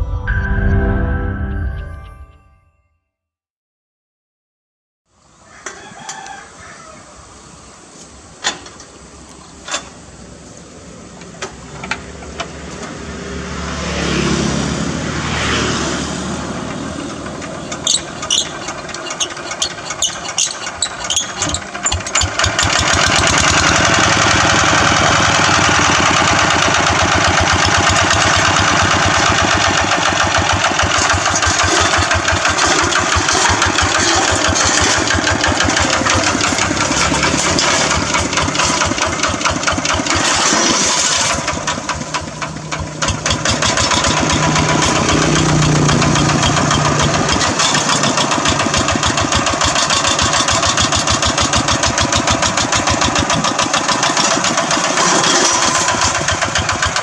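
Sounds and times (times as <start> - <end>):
diesel engine running: 7.3 - 57.0
engine hand-cranking: 16.6 - 57.0
metal clanks: 30.5 - 57.0.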